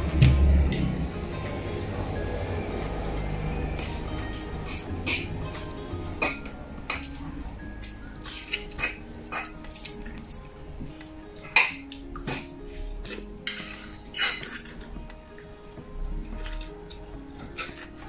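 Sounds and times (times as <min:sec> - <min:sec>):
forks clinking against bowls: 0:11.4 - 0:14.9.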